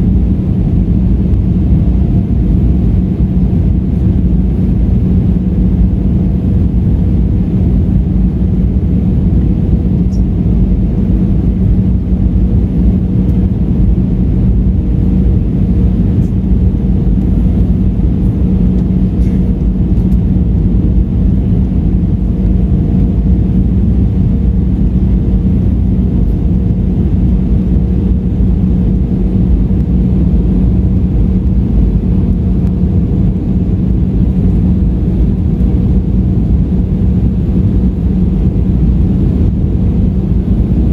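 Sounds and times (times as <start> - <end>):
constant low hum: 0.0 - 40.9
plane engine and airflow rumble: 0.0 - 40.9.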